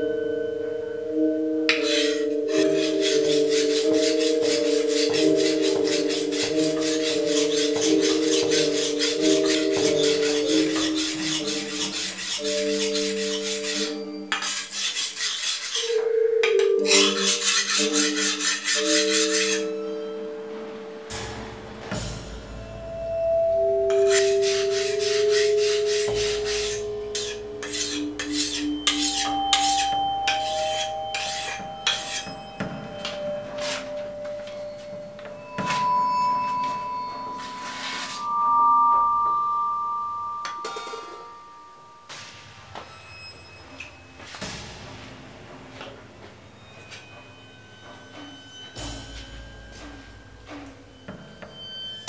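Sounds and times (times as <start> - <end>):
sustained background music: 0.0 - 52.0
knife scraping on whetstone: 1.7 - 16.1, 16.8 - 19.8, 23.9 - 34.6, 36.5 - 38.4.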